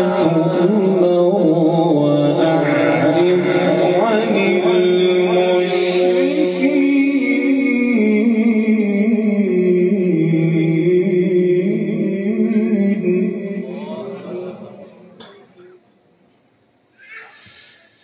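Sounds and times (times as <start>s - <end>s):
man reciting melodically: 0.0s - 15.8s.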